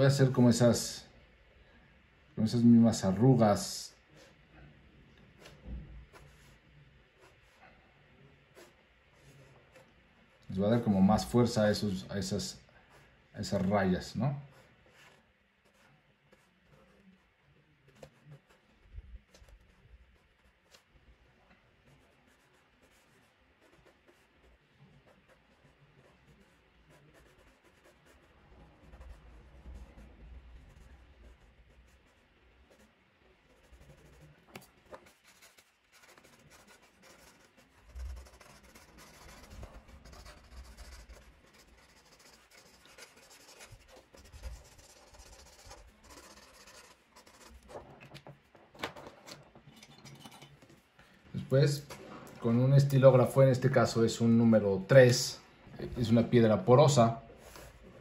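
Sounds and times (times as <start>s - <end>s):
pencil scratching on paper: 14.4s - 20.9s, 21.8s - 48.3s.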